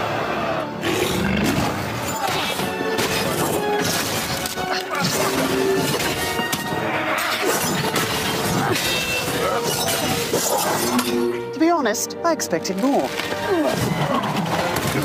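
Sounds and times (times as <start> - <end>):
dramatic music: 0.0 - 15.0
hits clangs and shattering crashes: 1.4 - 11.3.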